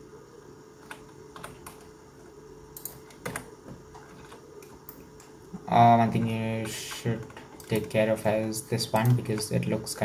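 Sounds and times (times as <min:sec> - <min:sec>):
faint steady hum: 0:00.0 - 0:10.0
keyboard and mouse clicks: 0:00.8 - 0:01.9, 0:02.7 - 0:05.3, 0:06.1 - 0:09.8.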